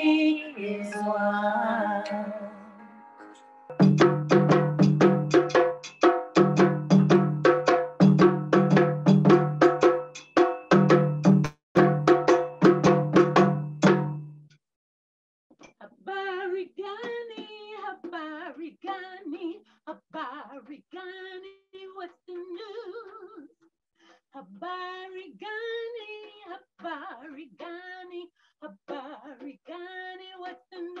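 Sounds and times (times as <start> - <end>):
woman singing unaccompanied: 0.0 - 2.6, 15.7 - 23.5, 24.4 - 31.0.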